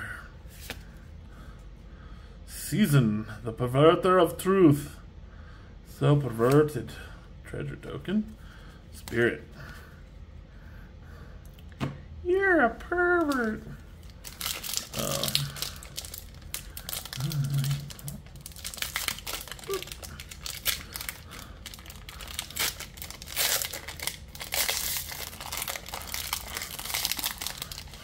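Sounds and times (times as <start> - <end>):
foil wrapper crinkling: 13.2 - 28.0.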